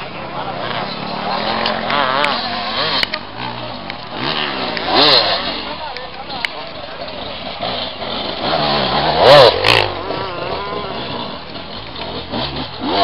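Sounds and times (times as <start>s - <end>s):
motorcycle engine revving hard: 0.4s - 5.8s, 7.0s - 13.0s.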